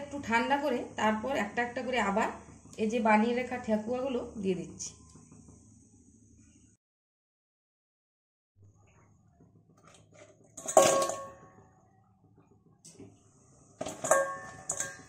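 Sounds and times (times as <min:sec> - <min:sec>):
fried snacks clattering into metal bowl: 0:09.9 - 0:11.5, 0:13.8 - 0:15.0.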